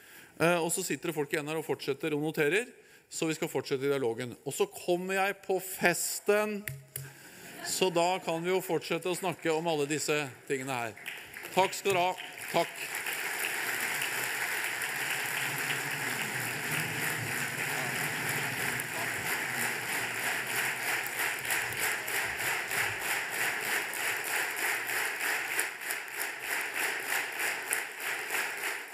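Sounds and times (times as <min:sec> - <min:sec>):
large audience applauding: 0:10.6 - 0:28.9.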